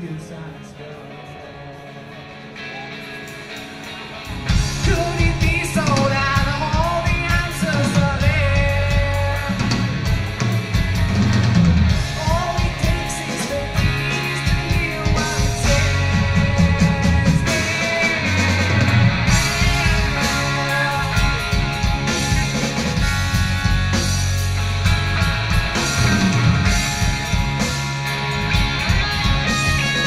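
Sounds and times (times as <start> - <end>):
live rock band: 0.0 - 30.0
man singing: 4.7 - 10.1, 12.0 - 22.6.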